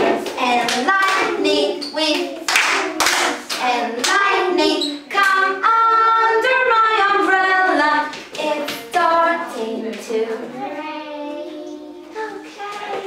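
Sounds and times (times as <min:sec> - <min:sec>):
woman and children singing: 0:00.0 - 0:13.0
hand claps: 0:02.2 - 0:04.2.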